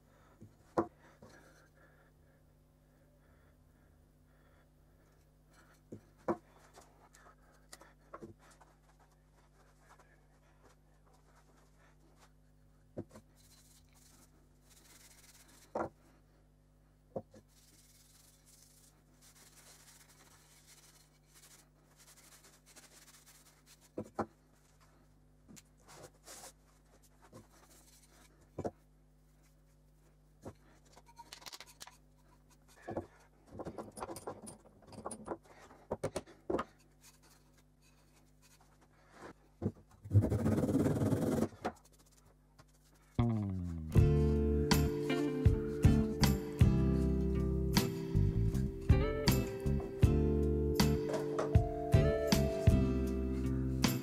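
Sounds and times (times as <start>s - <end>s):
faint steady hum: 0.0s - 40.5s.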